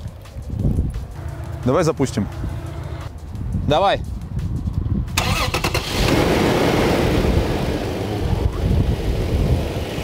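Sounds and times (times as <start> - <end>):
car engine starting and running: 5.2 - 10.0.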